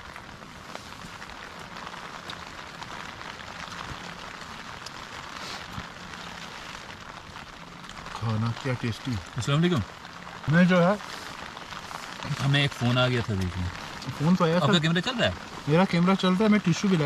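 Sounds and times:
rain on tent fabric: 0.0 - 17.0.

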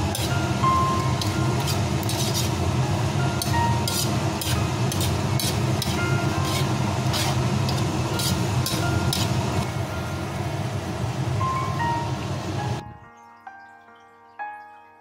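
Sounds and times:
metal ladle scraping a wok: 0.0 - 0.4, 1.1 - 2.8, 3.4 - 9.4.

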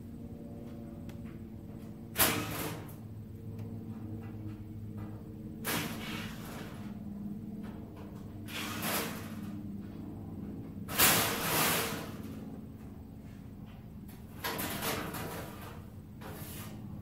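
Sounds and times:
low hum: 0.0 - 5.7.

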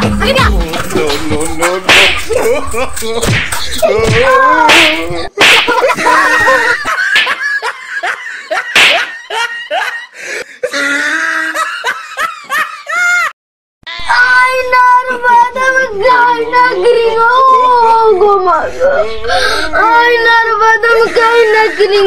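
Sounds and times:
person singing: 0.0 - 3.2
sharp smacks: 1.9 - 2.3, 3.2 - 5.9, 7.1 - 7.4, 8.7 - 9.2
children laughing and shrieking: 2.2 - 13.3, 13.9 - 22.0.

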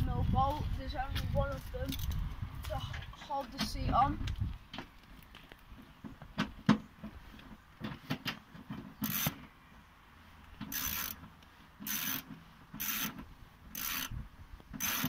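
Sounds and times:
ratchet wrench ratcheting: 9.0 - 9.4, 10.7 - 11.2, 11.8 - 14.2, 14.8 - 15.0.

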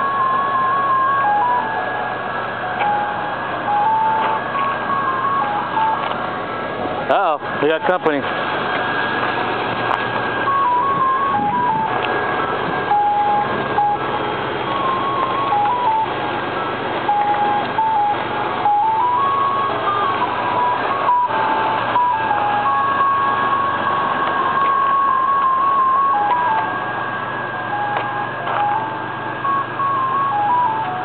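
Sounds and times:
electronic music box chime tune: 0.0 - 2.0, 2.7 - 6.0, 12.9 - 14.1, 14.7 - 16.1, 17.1 - 27.0, 27.7 - 31.0
steady background noise: 0.0 - 31.0.

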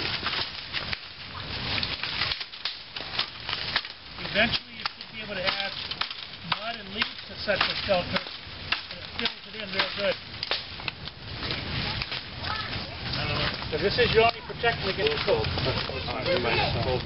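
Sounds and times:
twigs and leaves crackling: 0.0 - 17.0
people talking: 4.2 - 5.8, 6.5 - 8.3, 8.9 - 10.2, 11.4 - 17.0.

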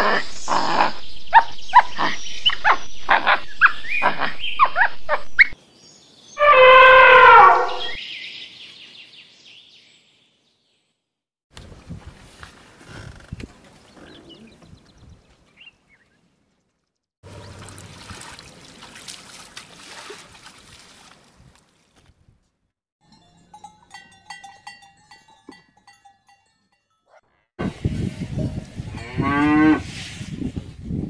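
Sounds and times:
cow mooing: 6.4 - 8.0.

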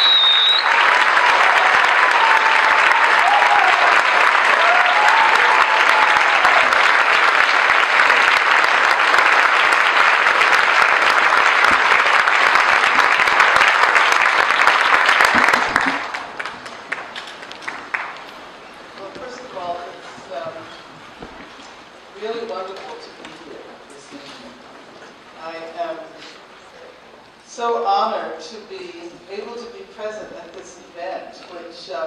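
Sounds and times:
audience applauding: 0.0 - 19.0.

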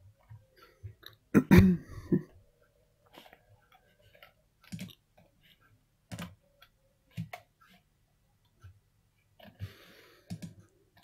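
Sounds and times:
computer mouse clicking: 3.1 - 5.3, 6.1 - 7.8, 10.3 - 11.0.

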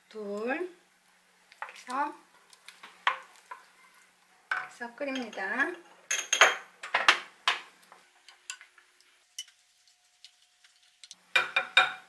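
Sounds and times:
wooden spoon knocking on ceramic dish: 11.4 - 12.0.

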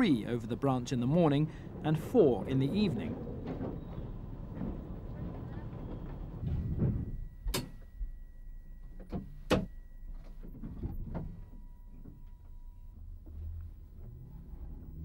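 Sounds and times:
train rumbling: 0.0 - 8.2
faint steady whine: 0.0 - 15.0
equipment clicks and clunks: 2.9 - 8.0.

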